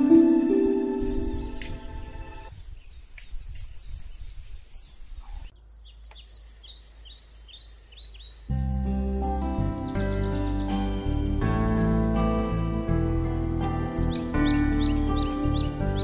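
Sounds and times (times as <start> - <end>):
background music: 0.0 - 2.5, 8.5 - 16.0
birds chirping: 0.0 - 16.0.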